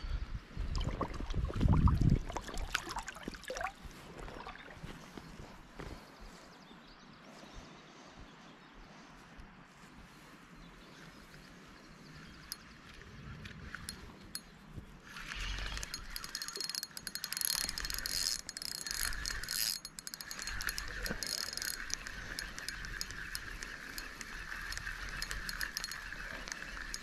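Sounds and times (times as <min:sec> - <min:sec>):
fishing reel whirring and ticking: 0:12.4 - 0:27.0.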